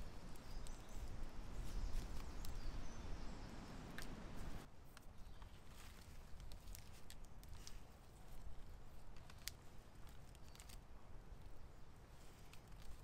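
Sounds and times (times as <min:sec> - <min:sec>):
rope creaking and clicking: 0:00.0 - 0:02.7, 0:03.9 - 0:13.0.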